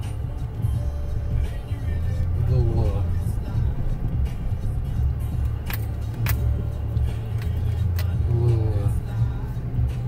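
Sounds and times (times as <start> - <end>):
engine and tyres rumbling: 0.0 - 10.0.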